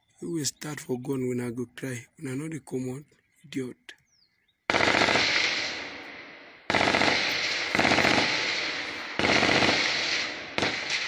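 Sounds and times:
automatic gunfire bursts: 4.7s - 5.9s, 6.7s - 11.0s.

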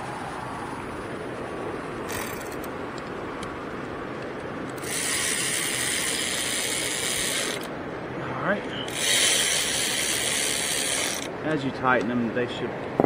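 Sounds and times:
power ratchet running: 4.8s - 7.7s, 8.9s - 11.3s.

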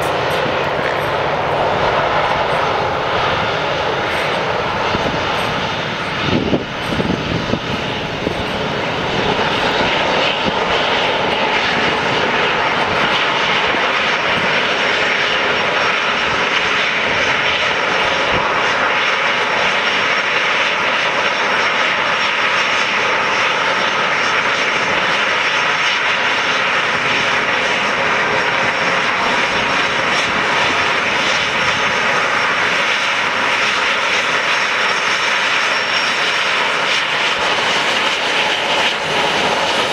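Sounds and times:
low rumbling: 0.0s - 14.4s
jet engines taxiing: 0.0s - 39.9s.

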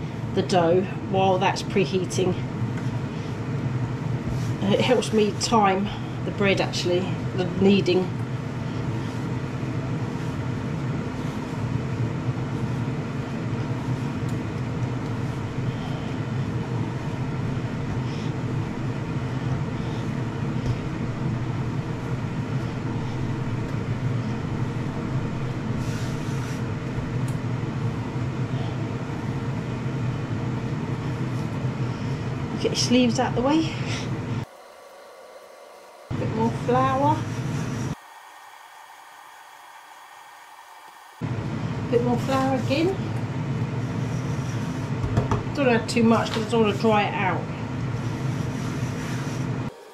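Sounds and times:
air fryer fan drone: 0.0s - 49.9s
dough being kneaded: 0.1s - 40.1s.

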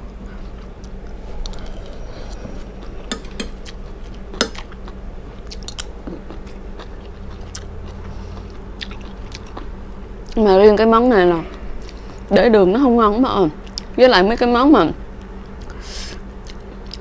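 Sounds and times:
faint low hum: 0.0s - 17.0s
person chewing food: 0.3s - 10.4s, 11.4s - 12.3s, 16.4s - 17.0s.

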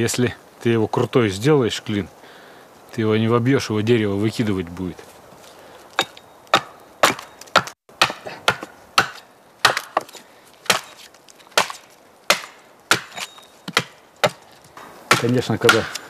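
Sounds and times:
hammer knocking wedge into log: 15.1s - 16.0s.

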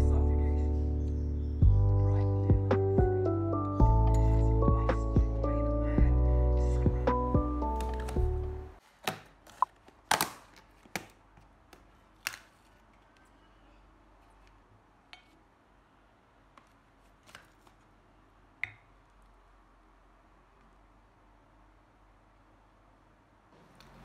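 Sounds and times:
plastic lid crackling and snapping: 9.0s - 12.7s.

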